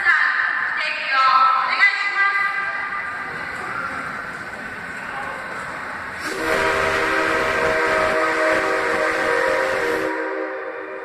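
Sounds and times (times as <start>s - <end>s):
steam hiss: 5.5s - 10.9s
steam locomotive whistle: 6.2s - 11.0s.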